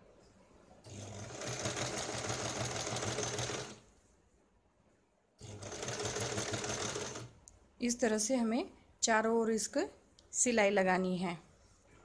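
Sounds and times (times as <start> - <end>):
sewing machine stitching: 0.9 - 3.8, 5.4 - 7.4.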